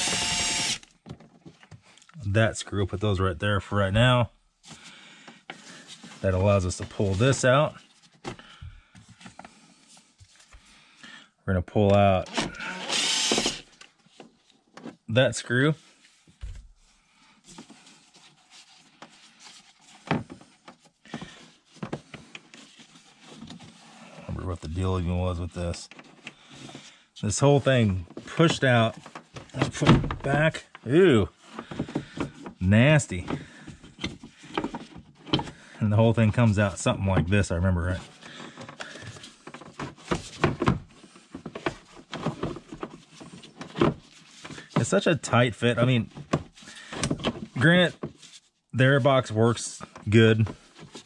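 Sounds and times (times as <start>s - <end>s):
plastic parts rubbing and scraping: 4.6s - 10.7s, 17.4s - 51.0s.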